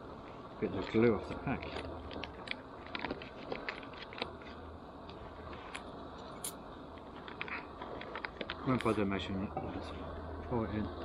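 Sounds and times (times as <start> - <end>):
coffee bag crinkling: 0.8 - 4.6.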